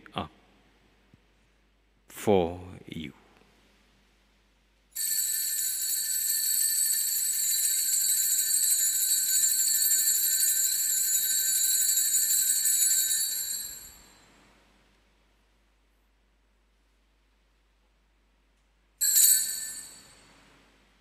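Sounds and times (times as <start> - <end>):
bells ringing: 5.0 - 14.3, 19.0 - 20.4.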